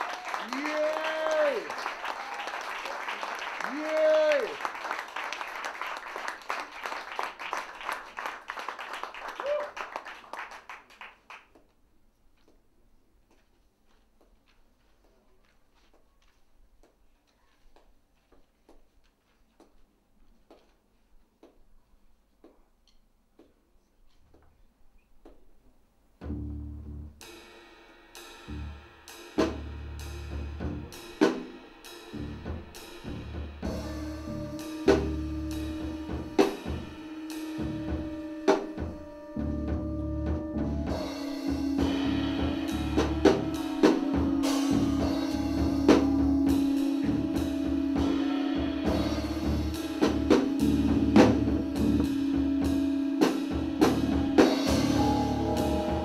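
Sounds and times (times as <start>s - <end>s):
jazz trio music: 26.2s - 27.2s, 28.4s - 56.0s
low bass notes: 26.2s - 27.2s, 32.2s - 56.0s
drum kit hits: 28.4s - 56.0s
held tone: 33.7s - 56.0s.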